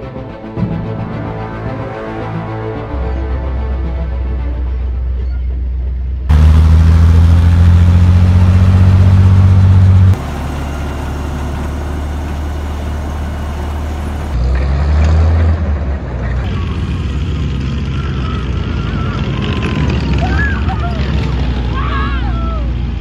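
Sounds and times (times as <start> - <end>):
vehicle engine droning: 4.3 - 23.0.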